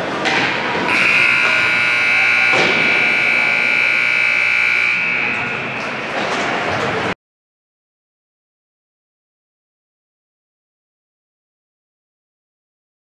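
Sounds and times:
crowd noise: 0.0s - 7.2s
arena horn buzzer blast: 0.9s - 6.2s
sharp knock: 2.4s - 3.1s.

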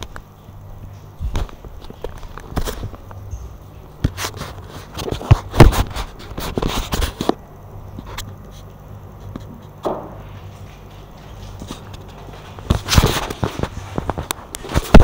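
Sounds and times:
camera handling scraping and rubbing: 11.6s - 15.0s.

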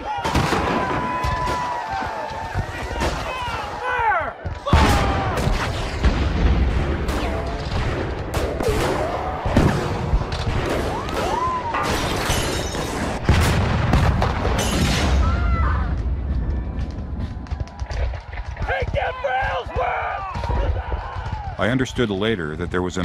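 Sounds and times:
artillery shells exploding: 11.8s - 17.2s
deep rumble: 13.3s - 18.6s.

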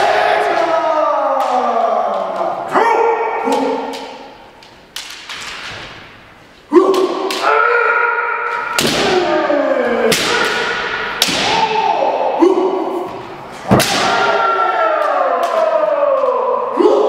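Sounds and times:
people shouting: 0.0s - 4.4s, 6.7s - 17.0s
bamboo swords cracking: 3.5s - 6.2s, 6.8s - 9.4s, 10.0s - 11.8s, 13.7s - 16.4s.

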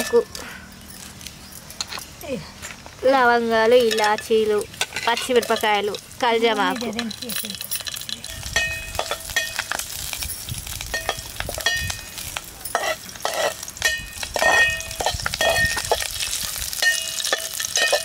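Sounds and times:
spices sizzling in hot oil: 2.8s - 18.0s
ladle clinking and scraping pot: 3.8s - 5.9s, 10.9s - 18.0s.

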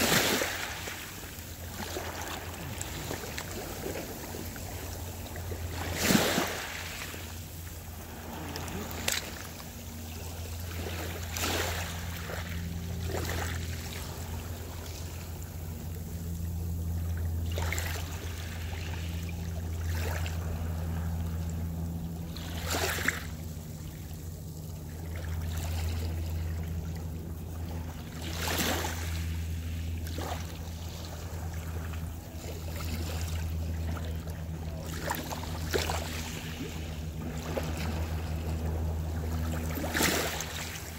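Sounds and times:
waves washing over pebbles: 0.0s - 23.4s
steady low hum: 0.0s - 40.9s.

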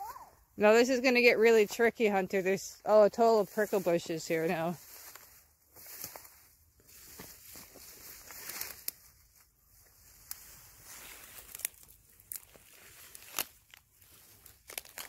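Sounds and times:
leaves rustling and crackling: 0.6s - 15.0s
footsteps through brush: 1.2s - 15.0s
twigs snapping: 7.1s - 9.1s, 10.2s - 10.5s, 11.1s - 15.0s.

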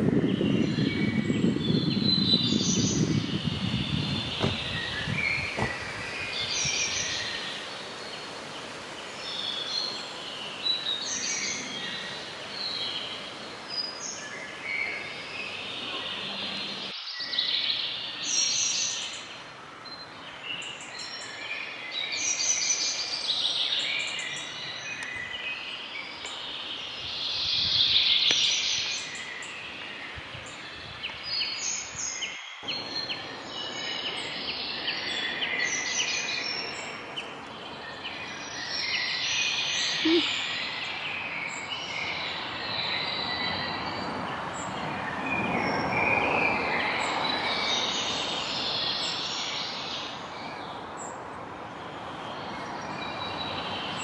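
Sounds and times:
songbirds chirping and singing: 0.0s - 54.0s
steady background hiss: 4.4s - 44.8s.

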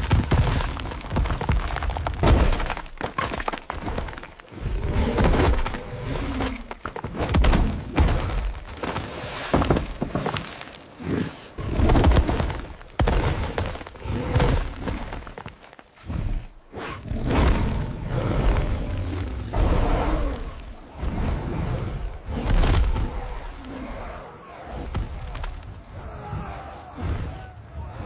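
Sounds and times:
clay and debris shattering: 0.0s - 4.5s.

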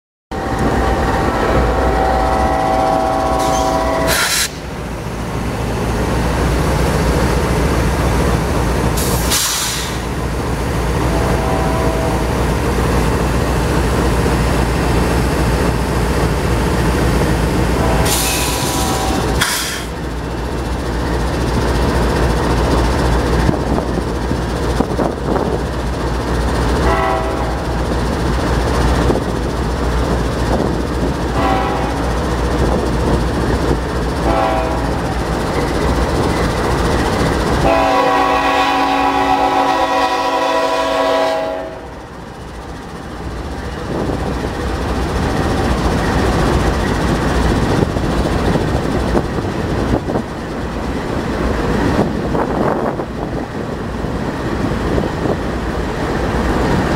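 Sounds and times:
train horn blasts: 0.3s - 4.6s, 11.0s - 12.4s, 17.7s - 19.4s, 26.8s - 27.8s, 31.3s - 32.2s, 34.2s - 35.1s, 37.6s - 42.0s
short hisses: 9.0s - 10.1s.

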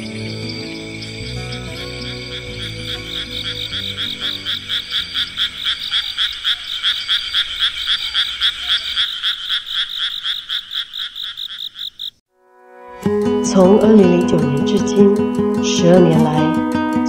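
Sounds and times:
soft background music: 0.0s - 5.8s, 12.4s - 17.0s
frog calling in pulses: 0.0s - 12.2s.

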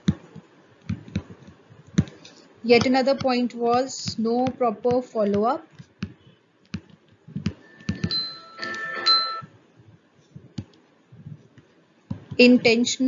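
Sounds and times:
chime of steady tones: 7.6s - 9.5s.

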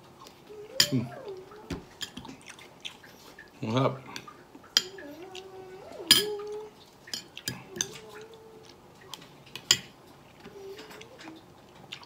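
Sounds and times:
metal spoon clinking on ceramic bowl: 6.1s - 6.3s.

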